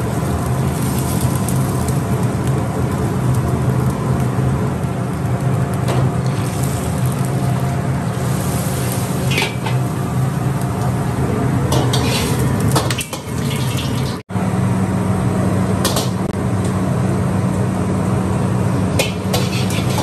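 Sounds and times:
gas burner humming: 0.0s - 20.0s
water splashing and draining: 12.0s - 14.2s.

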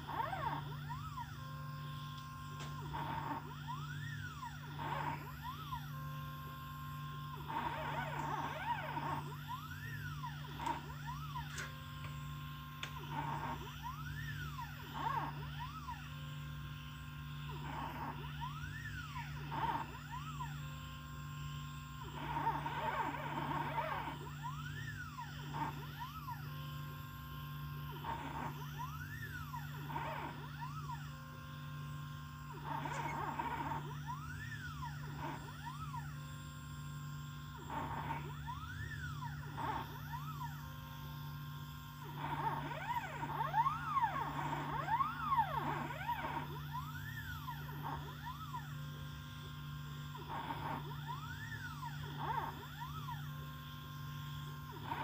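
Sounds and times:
constant low hum: 0.0s - 55.0s
stepper motors whining: 0.0s - 55.0s.

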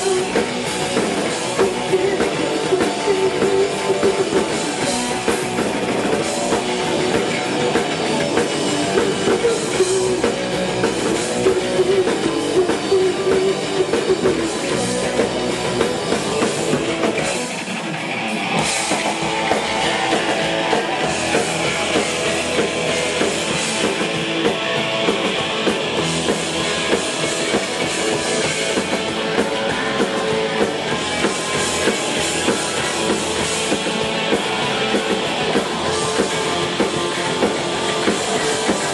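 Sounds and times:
rock band playing: 0.0s - 38.9s.

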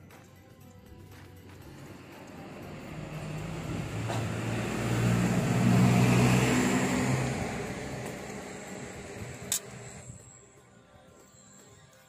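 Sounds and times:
vehicle driving past: 1.6s - 10.1s.

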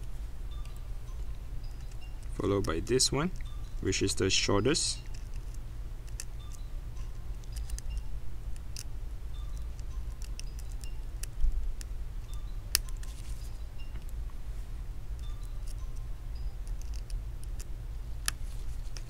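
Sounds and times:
screwdriver clicking tiny screws: 7.4s - 13.1s, 16.6s - 19.0s.

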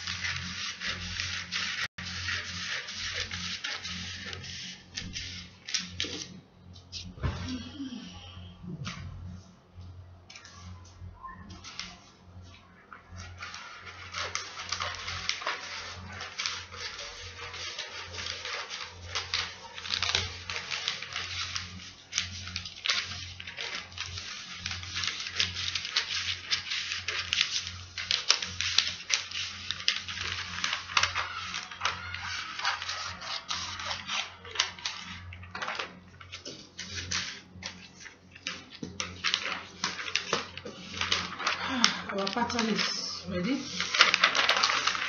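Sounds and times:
paper rustling and crinkling: 0.0s - 8.1s, 10.3s - 45.0s
scissors snipping paper: 13.2s - 45.0s.

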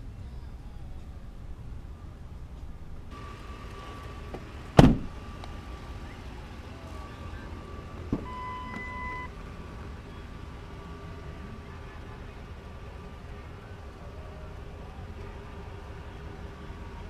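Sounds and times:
car door slamming: 4.0s - 5.3s, 8.0s - 9.3s.

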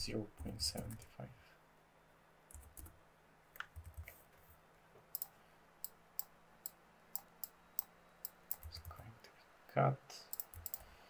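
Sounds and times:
computer mouse clicking: 2.5s - 2.9s, 3.6s - 4.2s, 5.1s - 9.0s, 10.3s - 11.0s.

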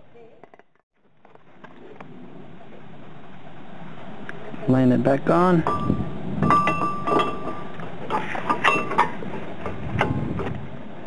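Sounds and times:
metal parts clinking and knocking: 5.7s - 9.2s.

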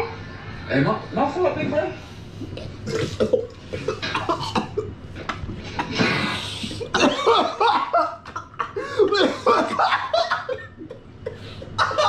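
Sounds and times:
men coughing and spluttering: 2.6s - 12.0s
group laughing loudly: 6.9s - 12.0s.

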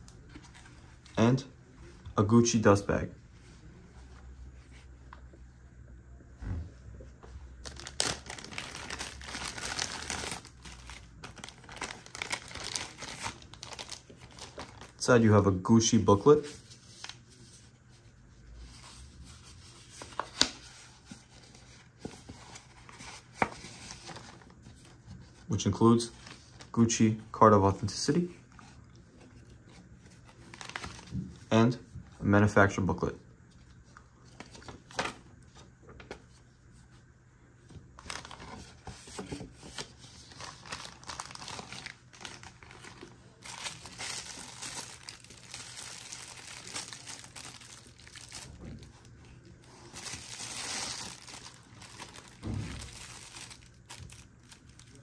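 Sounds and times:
plastic bag crinkling: 7.6s - 15.1s, 40.1s - 55.0s
paper rustling: 38.0s - 55.0s.

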